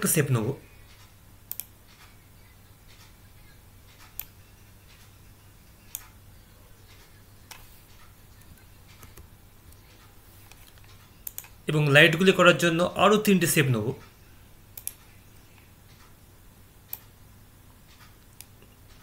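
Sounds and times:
faint low hum: 0:00.0 - 0:19.0
computer mouse clicks: 0:00.8 - 0:02.2, 0:05.9 - 0:06.2, 0:06.8 - 0:11.6, 0:14.7 - 0:16.2, 0:16.8 - 0:17.2.

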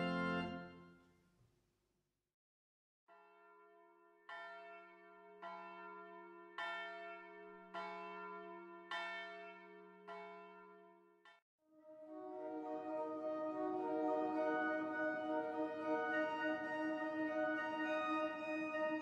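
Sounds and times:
church bell tolling: 0:04.3 - 0:10.8.

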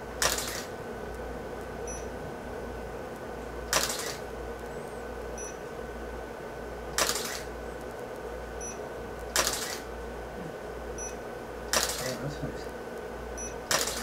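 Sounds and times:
faint electrical hum: 0:00.0 - 0:14.0
camera shutter snapping: 0:00.2 - 0:00.7, 0:03.7 - 0:04.2, 0:07.0 - 0:07.5, 0:09.3 - 0:09.9, 0:11.7 - 0:12.2, 0:13.7 - 0:14.0.

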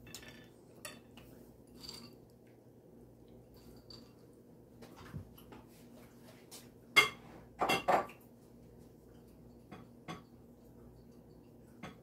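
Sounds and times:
dishes and utensils clinking: 0:00.0 - 0:02.2, 0:07.0 - 0:08.2, 0:11.0 - 0:12.0.

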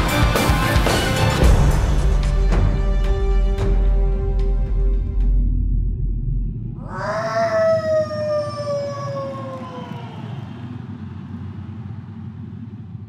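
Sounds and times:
low steady rumble: 0:03.2 - 0:13.0
siren wailing: 0:06.7 - 0:12.0.

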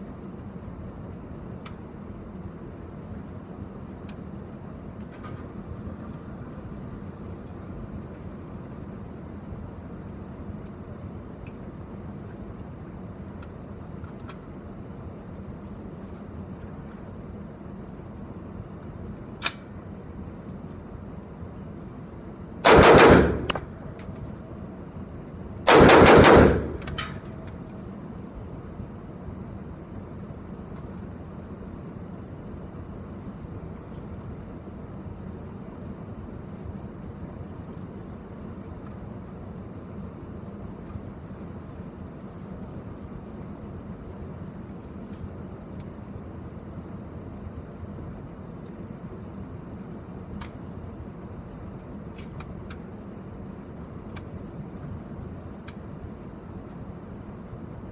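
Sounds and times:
rapid rifle fire: 0:22.6 - 0:23.8, 0:25.7 - 0:26.9.

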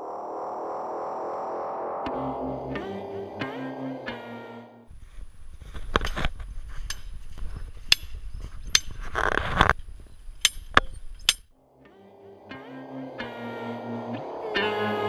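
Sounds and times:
wind rumbling on microphone: 0:04.9 - 0:11.4.

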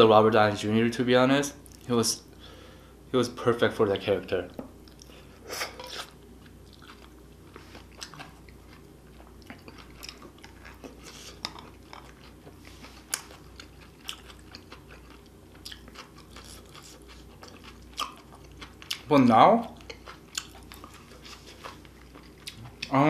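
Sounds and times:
wet chewing sounds: 0:05.8 - 0:23.0.

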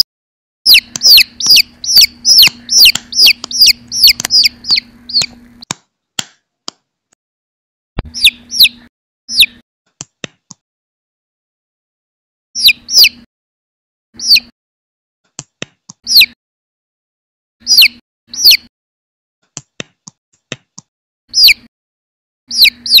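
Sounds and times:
baby chick peeping: 0:00.7 - 0:05.7, 0:08.0 - 0:09.6, 0:12.6 - 0:13.3, 0:14.2 - 0:14.5, 0:16.0 - 0:16.4, 0:17.6 - 0:18.7, 0:21.3 - 0:21.7, 0:22.5 - 0:23.0.

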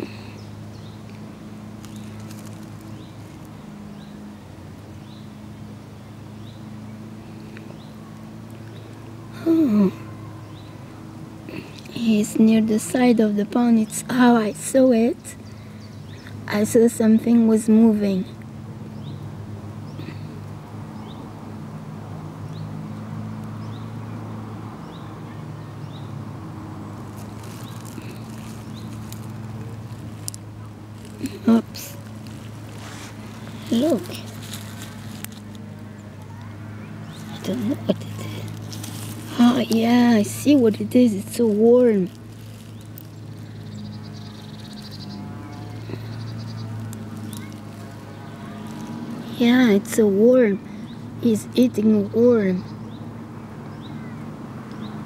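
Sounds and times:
low mechanical hum: 0:00.0 - 0:55.0
bird chirping: 0:36.8 - 0:49.4.

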